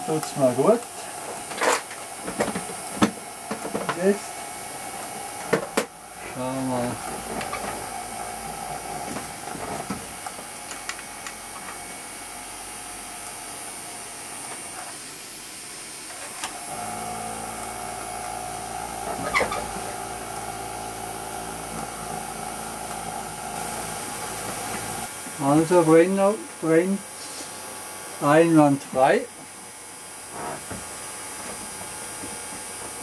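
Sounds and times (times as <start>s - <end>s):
small electric motor whine: 1.4s - 12.2s, 16.4s - 25.1s.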